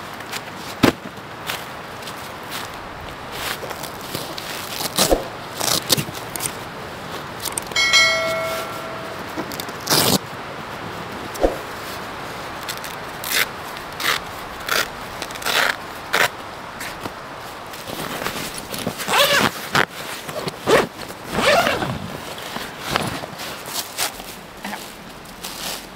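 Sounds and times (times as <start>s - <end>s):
short ringing tone: 7.7s - 9.6s.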